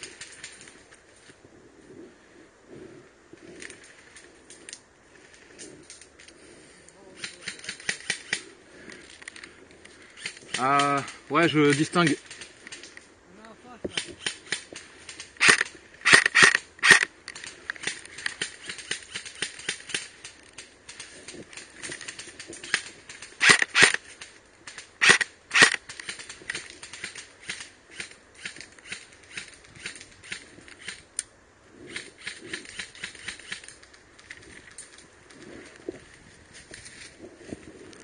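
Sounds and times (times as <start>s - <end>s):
airsoft rifle shots: 13.9s - 17.1s, 22.6s - 24.0s, 24.7s - 31.0s.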